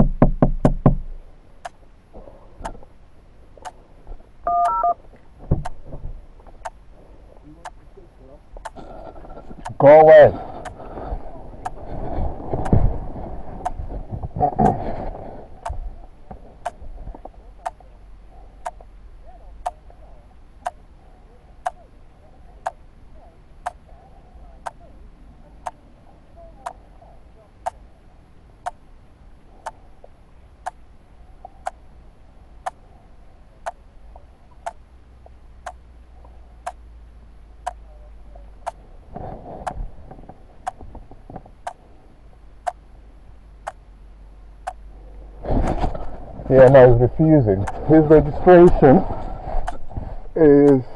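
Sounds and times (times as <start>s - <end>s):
knocks and rustles: 5.1s - 6.6s, 45.4s - 46.9s
watch ticking: 18.6s - 19.0s, 28.6s - 28.8s, 30.6s - 30.8s, 32.6s - 32.8s, 35.6s - 35.9s, 37.6s - 38.0s, 44.6s - 44.9s.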